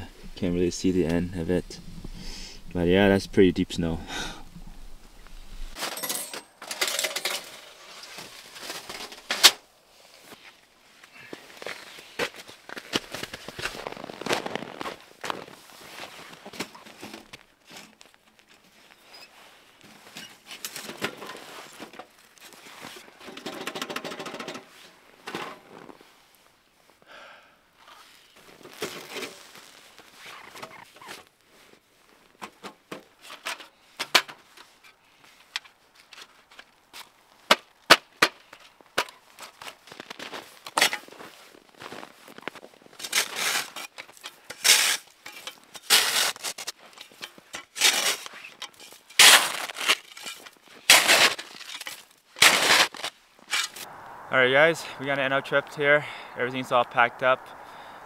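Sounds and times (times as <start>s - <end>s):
knocks and clanks of camp gear: 4.4s - 9.6s, 19.8s - 22.2s, 22.8s - 25.9s, 32.3s - 39.9s
shovel scraping packed snow: 40.2s - 53.9s.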